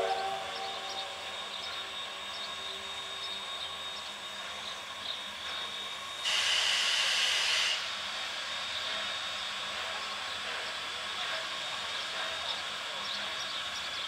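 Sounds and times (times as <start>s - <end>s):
steam locomotive hissing steam: 0.0s - 14.0s.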